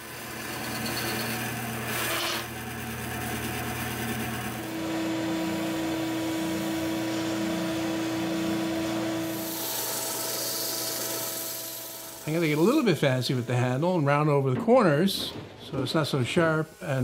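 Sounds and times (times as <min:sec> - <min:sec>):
bandsaw running: 0:00.0 - 0:17.0
bandsaw cutting plywood: 0:01.1 - 0:17.0
spindle sander humming: 0:02.5 - 0:17.0.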